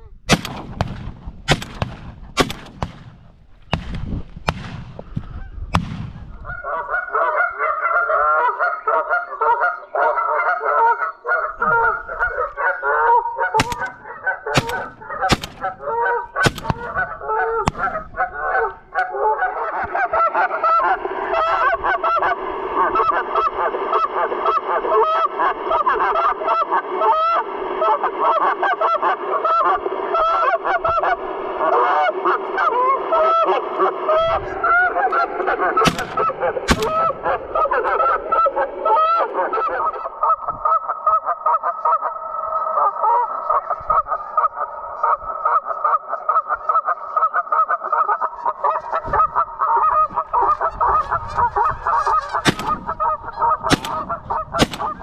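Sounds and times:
geese honking: 0.0s - 55.0s
shotgun shots: 0.3s - 6.6s, 13.6s - 18.7s, 35.8s - 37.8s, 52.2s - 55.0s.

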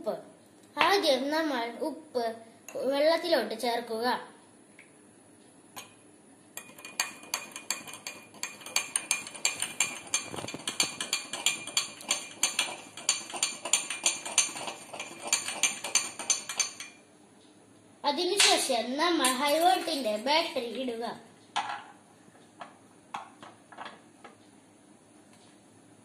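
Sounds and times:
metal spoon clinking glass: 6.6s - 17.0s.

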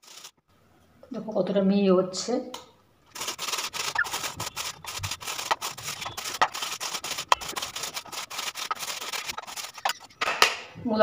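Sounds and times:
radish rasping on metal grater: 3.1s - 10.2s.

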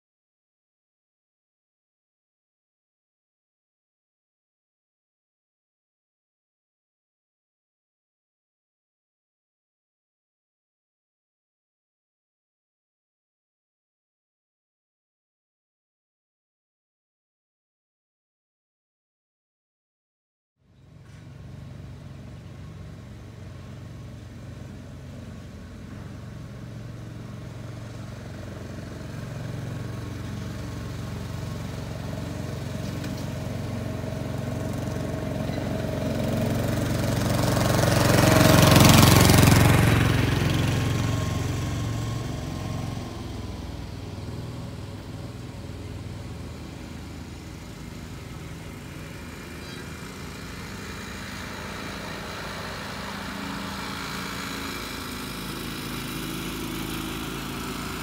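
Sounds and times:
miniature railway locomotive engine: 20.8s - 58.0s.

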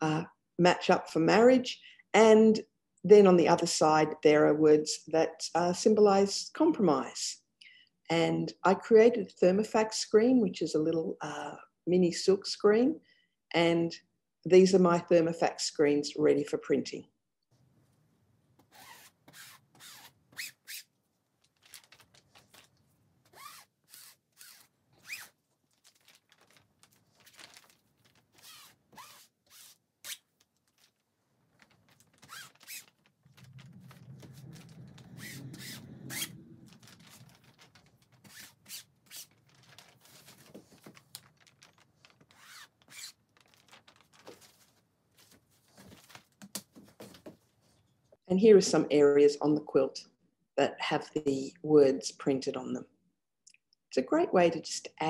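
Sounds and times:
low rumble: 33.2s - 37.8s.

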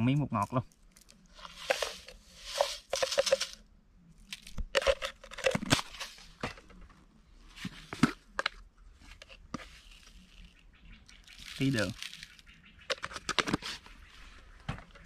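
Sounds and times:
granules shaken in plastic jar: 1.4s - 3.6s
screw caps twisting: 1.4s - 3.6s, 4.3s - 6.1s.

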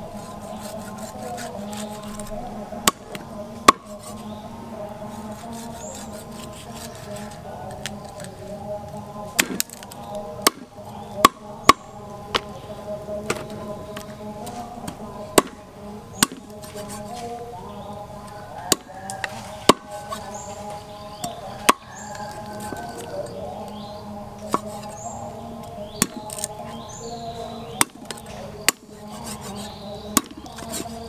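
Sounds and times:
knife chopping on wooden board: 14.9s - 15.6s, 16.2s - 17.2s, 27.7s - 31.0s.

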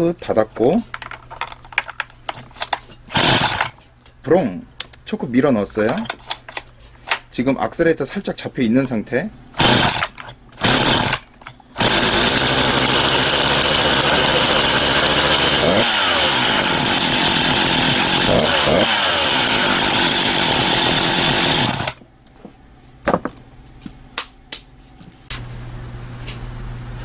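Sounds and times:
chainsaw pull-start bursts: 2.6s - 3.8s, 9.6s - 22.0s
chainsaw running at high speed: 3.1s - 3.7s, 9.6s - 11.2s, 11.8s - 22.0s.

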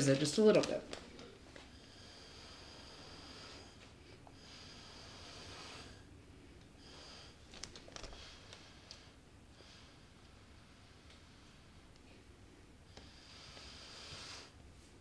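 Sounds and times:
breath blown through a straw: 13.2s - 14.6s.

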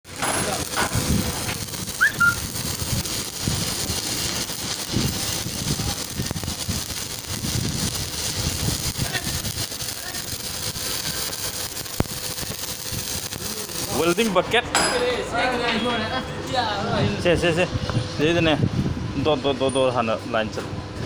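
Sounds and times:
welding arc crackling: 0.0s - 15.6s
short high chirp: 2.0s - 2.4s.

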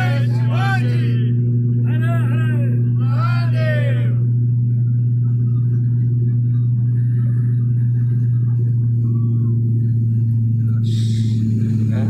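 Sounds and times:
airliner engine hum in cabin: 0.0s - 12.0s.

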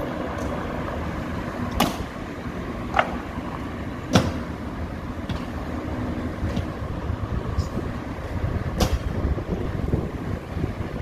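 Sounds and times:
steady background rumble: 0.0s - 11.0s.

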